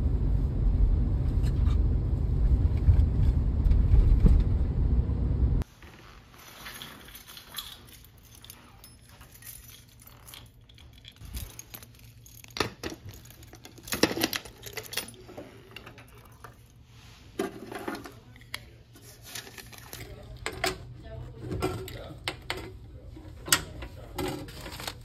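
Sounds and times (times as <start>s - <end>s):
keys jangling: 6.6s - 16.8s.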